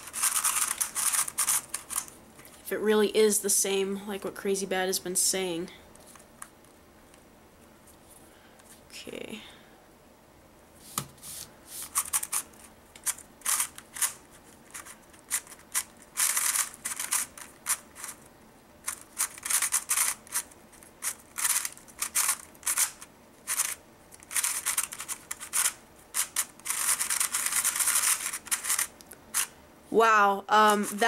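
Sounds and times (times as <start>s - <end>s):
puzzle cube clicking and rattling: 0.0s - 2.2s, 11.9s - 29.5s.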